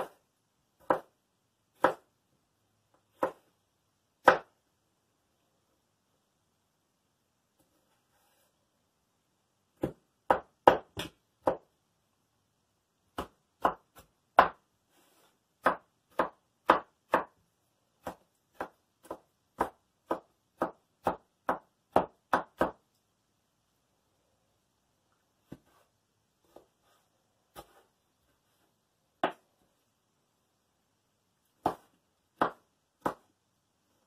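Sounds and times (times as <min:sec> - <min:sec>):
knife chopping on wooden board: 0:00.8 - 0:01.1, 0:01.8 - 0:02.1, 0:03.2 - 0:03.4, 0:04.2 - 0:04.5, 0:09.8 - 0:11.6, 0:15.6 - 0:17.3, 0:18.0 - 0:22.8, 0:29.2 - 0:29.4, 0:31.6 - 0:33.2.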